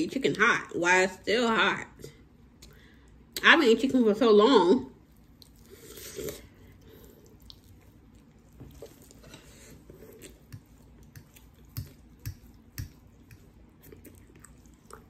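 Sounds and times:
person chewing food: 5.0 - 15.0.

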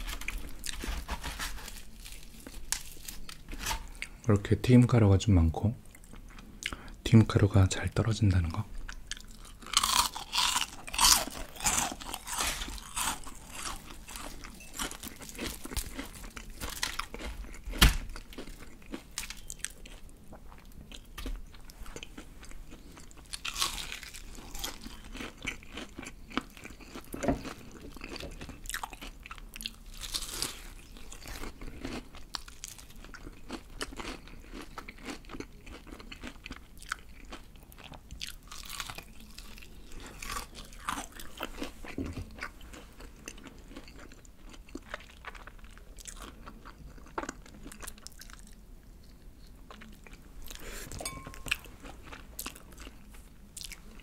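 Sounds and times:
crunching fried chicken: 9.0 - 50.7.

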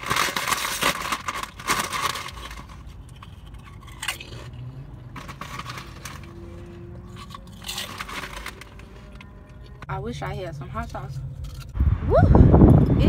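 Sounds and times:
chip bag crinkling: 0.0 - 9.8
chips crunching: 0.0 - 9.8.

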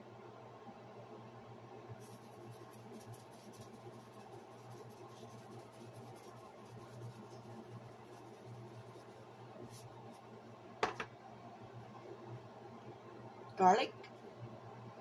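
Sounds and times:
steady low hum: 0.0 - 15.0
seasoning granules pattering: 2.0 - 10.3.

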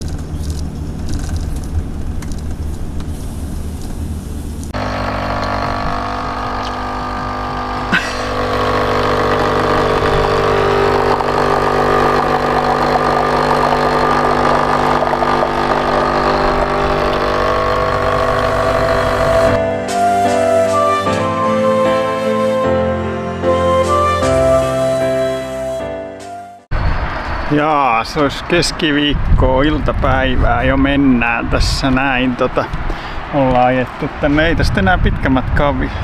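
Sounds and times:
engine and road noise: 0.0 - 19.7, 26.7 - 36.0
coffee machine hissing: 3.1 - 19.6
coffee machine pump buzzing: 4.8 - 19.6.

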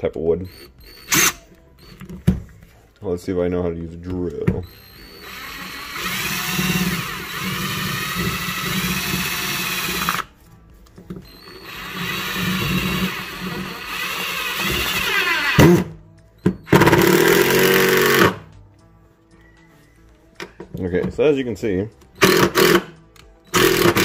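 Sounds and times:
sharp clicks of drill: 0.5 - 1.9, 4.6 - 10.3, 11.3 - 18.4, 22.2 - 24.0
cordless drill motor whirring: 4.6 - 10.3, 11.2 - 15.9, 16.5 - 18.4.

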